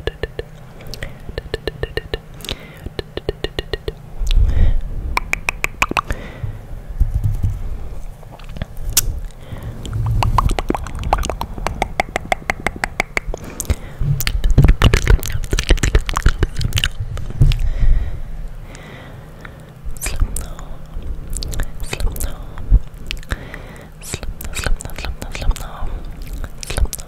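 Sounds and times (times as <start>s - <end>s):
wet mouth clicks and pops: 0.0s - 4.4s, 5.2s - 6.2s, 8.3s - 17.6s, 20.0s - 20.7s, 21.3s - 22.3s, 23.0s - 23.4s, 24.0s - 27.0s.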